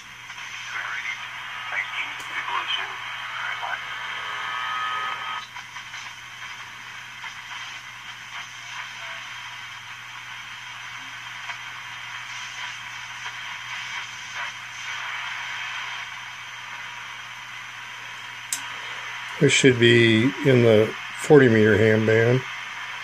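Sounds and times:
radio static and hiss: 0.0s - 23.0s
faint crackles: 0.2s - 23.0s.

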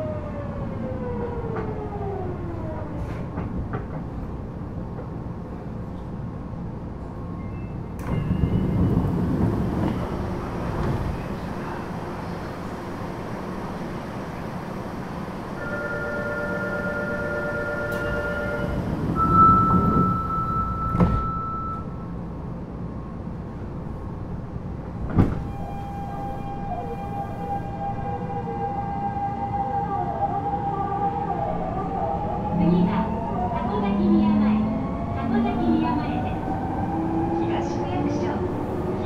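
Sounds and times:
wheels rumbling on track: 1.3s - 28.6s.

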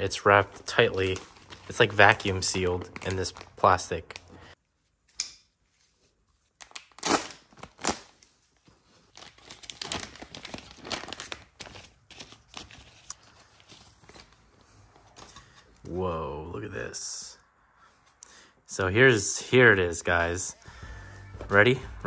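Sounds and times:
plastic crinkling and tearing: 0.4s - 4.3s, 6.5s - 14.3s
plastic wrap ripping: 6.6s - 8.2s, 9.1s - 12.5s.

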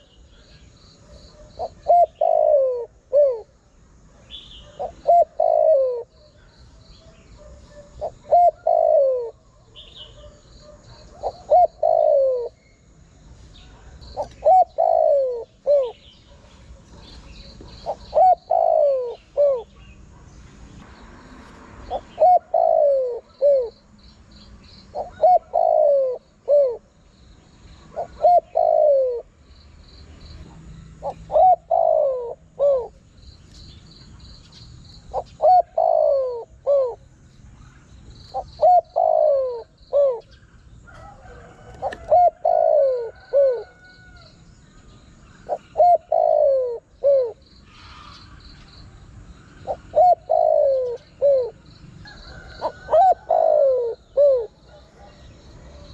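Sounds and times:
dove cooing: 0.0s - 3.6s, 4.2s - 12.7s, 13.6s - 20.0s, 21.8s - 23.8s, 24.9s - 27.0s, 27.8s - 29.4s, 31.0s - 33.1s, 35.0s - 37.0s, 38.3s - 44.3s, 45.4s - 48.4s, 49.5s - 55.9s
faint high chirping: 0.0s - 41.4s.

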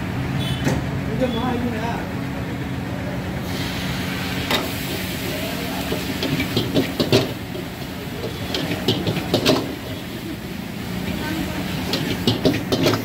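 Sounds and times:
steady rumble of gas flame: 0.0s - 13.0s
metal ladle clanking on wok: 5.9s - 9.9s, 11.1s - 13.0s.

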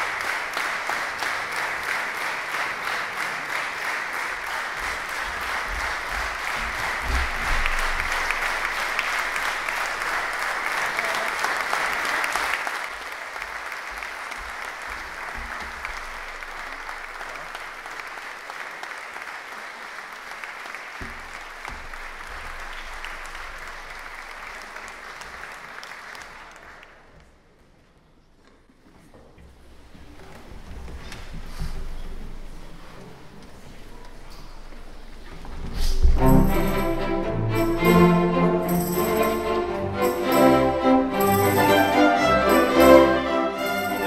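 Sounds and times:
audience applauding: 0.0s - 27.2s, 36.6s - 44.0s.

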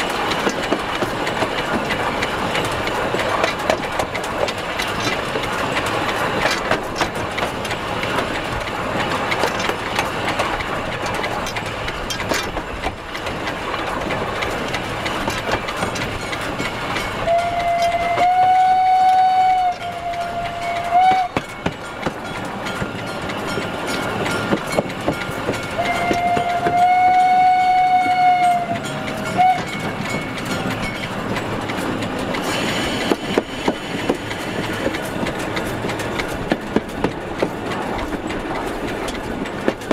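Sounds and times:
train wheels clattering: 0.0s - 39.9s
steam whistle blowing: 17.2s - 21.5s, 25.8s - 29.8s.

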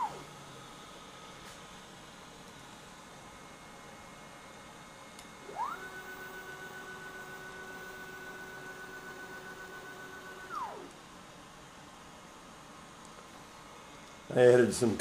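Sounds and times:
stepper motors whining: 0.0s - 0.3s, 5.4s - 11.0s.

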